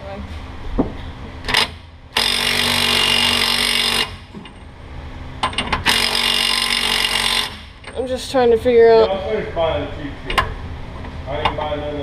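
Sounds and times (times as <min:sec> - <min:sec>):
impact wrench hammering: 0:01.5 - 0:04.3, 0:05.4 - 0:08.0.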